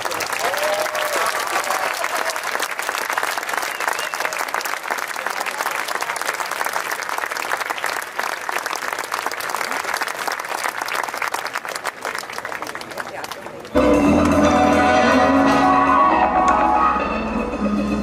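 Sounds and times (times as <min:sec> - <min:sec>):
crowd applauding: 0:00.0 - 0:14.4.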